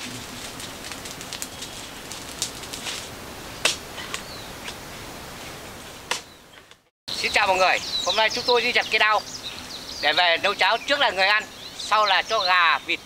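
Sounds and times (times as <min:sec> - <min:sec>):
dry fronds snapping and crackling: 0:00.0 - 0:04.8
bird chirp: 0:04.0 - 0:04.7, 0:05.5 - 0:13.0.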